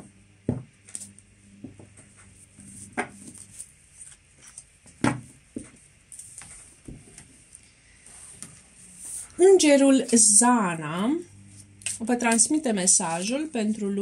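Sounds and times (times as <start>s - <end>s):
playing cards shuffling: 0.9s - 1.2s, 2.0s - 4.7s, 11.8s - 12.5s.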